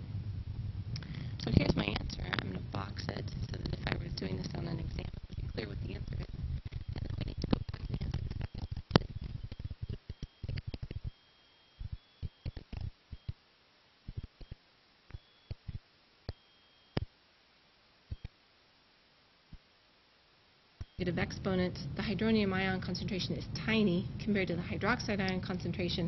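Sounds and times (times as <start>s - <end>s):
small sharp clicks and taps: 6.6s - 11.1s, 11.8s - 13.4s.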